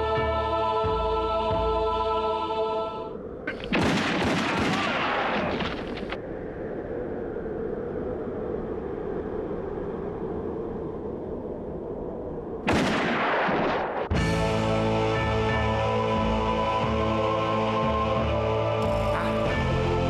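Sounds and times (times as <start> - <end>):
rapid handgun shots: 3.7 - 5.8.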